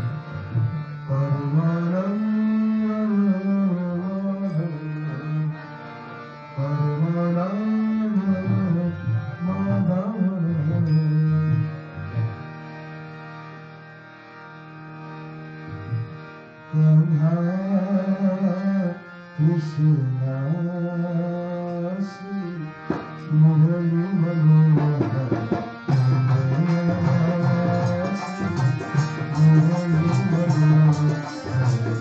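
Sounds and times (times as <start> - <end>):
harmonium chord: 0.0 - 32.0
man singing: 1.0 - 5.6, 6.6 - 11.8, 16.7 - 32.0
tabla strokes: 22.9 - 23.3, 24.8 - 32.0.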